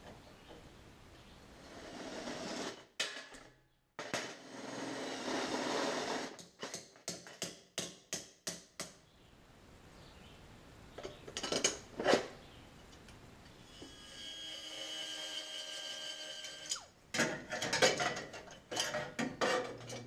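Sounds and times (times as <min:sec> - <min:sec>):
rough tool noise: 0:01.6 - 0:02.9, 0:04.3 - 0:06.4.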